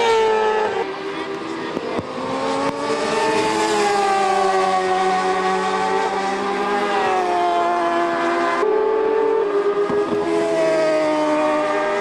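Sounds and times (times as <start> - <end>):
racing motorcycles passing at high revs: 0.0 - 12.0.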